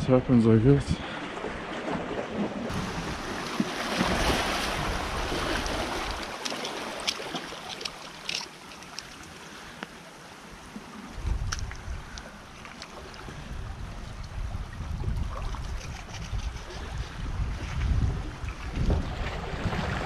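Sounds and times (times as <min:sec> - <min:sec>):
wind rumbling on microphone: 0:00.0 - 0:06.4, 0:10.8 - 0:20.0
surf washing against rocks: 0:01.9 - 0:13.6.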